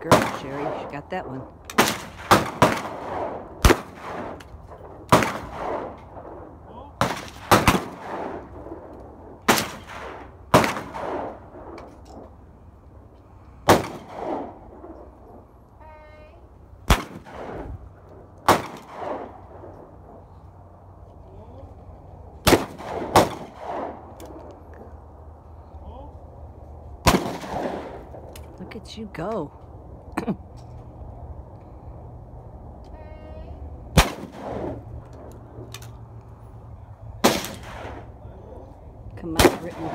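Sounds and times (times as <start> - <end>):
shotgun shots echoing: 1.7 - 4.4, 5.1 - 8.4, 9.5 - 11.5, 13.6 - 14.6, 16.9 - 17.7, 18.4 - 19.4, 22.4 - 24.1, 27.0 - 28.2, 34.0 - 34.8, 37.2 - 38.1, 39.3 - 39.9.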